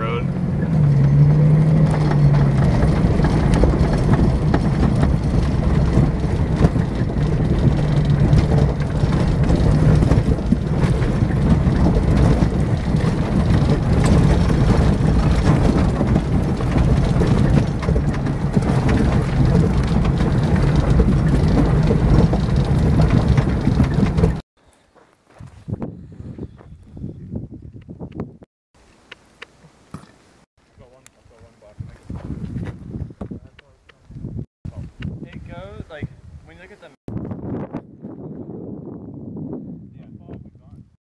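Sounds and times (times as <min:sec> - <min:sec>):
cab rattling: 0:00.0 - 0:24.4
tyres crunching over gravel: 0:00.6 - 0:25.8.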